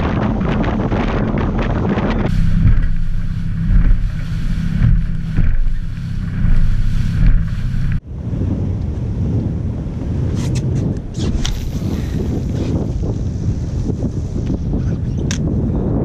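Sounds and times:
boat engine drone: 0.0 - 8.3
wind buffeting microphone: 0.0 - 16.0.

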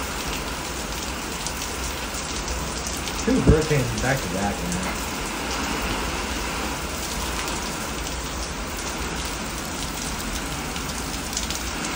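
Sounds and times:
heavy rain pouring: 0.0 - 11.9.

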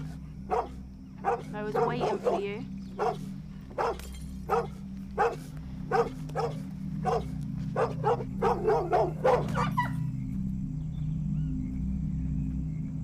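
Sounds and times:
dog barking: 0.0 - 10.0
steady low hum: 0.0 - 13.0.

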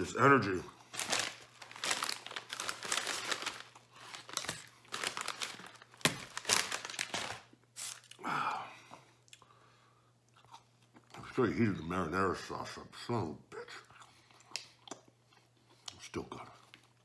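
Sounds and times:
paper bag crinkling: 0.4 - 8.1.

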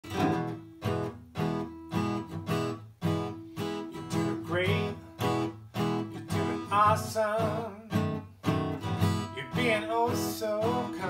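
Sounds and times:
acoustic guitar strumming: 0.0 - 11.0.

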